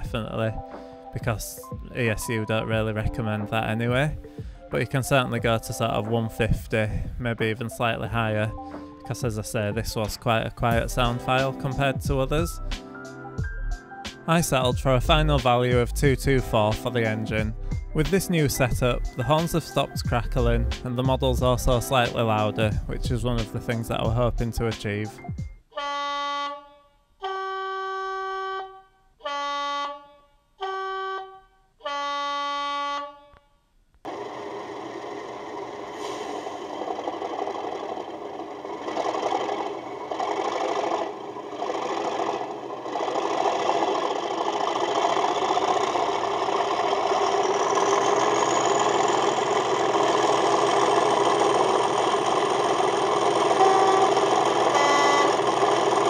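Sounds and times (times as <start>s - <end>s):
two-tone horn blasts: 25.7s - 33.5s, 44.7s - 56.0s
diesel engine sound: 34.1s - 56.0s
rising whistle: 53.4s - 55.4s.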